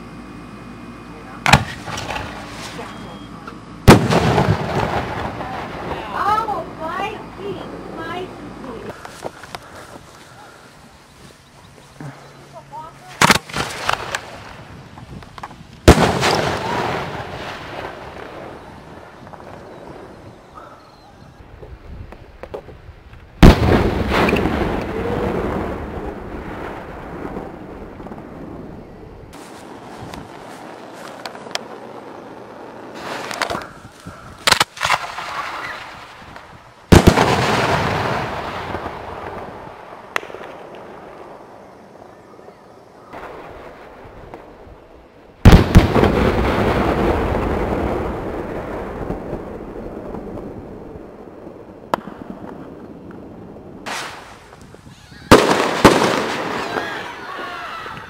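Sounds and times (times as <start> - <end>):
firework launch pops: 1.4 - 3.0, 3.9 - 5.4, 13.2 - 14.6, 15.2 - 17.0, 23.4 - 24.9, 29.3 - 31.8, 32.9 - 39.4, 40.1 - 40.9, 51.9 - 53.2, 53.8 - 56.8
firework bang echoing: 1.4 - 3.2, 3.8 - 6.4, 15.8 - 20.4, 23.4 - 41.3, 45.4 - 54.6, 55.2 - 57.5.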